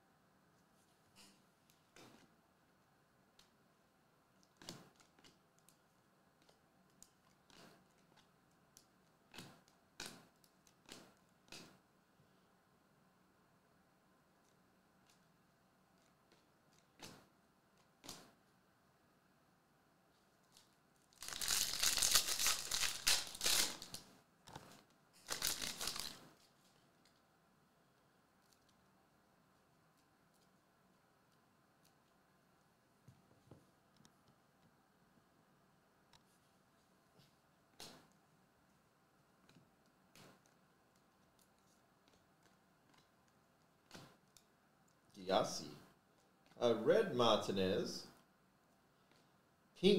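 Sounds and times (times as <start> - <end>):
foil wrapper crinkling: 21.1 - 24.0, 25.2 - 26.2.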